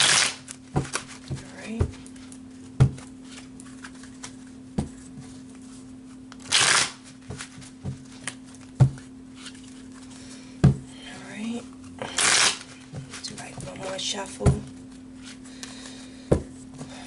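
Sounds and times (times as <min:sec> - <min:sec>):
cards being shuffled: 0:00.0 - 0:10.2, 0:11.4 - 0:14.0.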